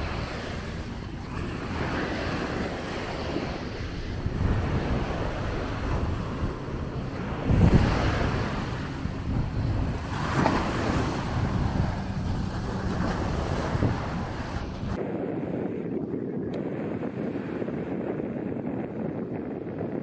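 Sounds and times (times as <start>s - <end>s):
small waves breaking on sand: 0.0s - 14.8s
wind buffeting microphone: 0.0s - 20.0s.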